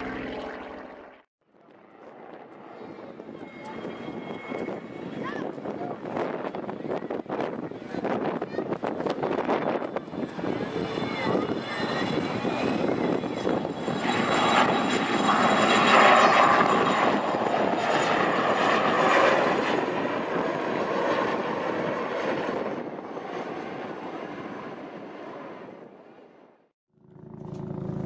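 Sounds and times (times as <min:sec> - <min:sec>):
helicopter rotor and engine: 0:00.0 - 0:28.0.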